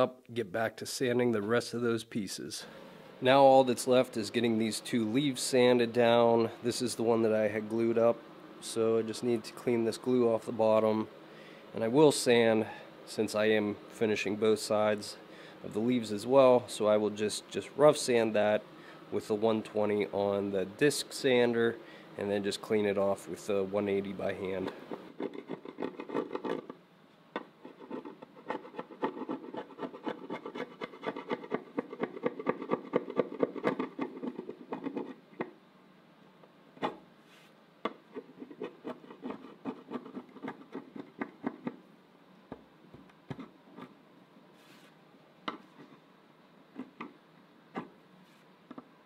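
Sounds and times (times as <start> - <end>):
steel scraper scraping wood: 24.7 - 26.7, 27.6 - 35.2, 38.2 - 41.1.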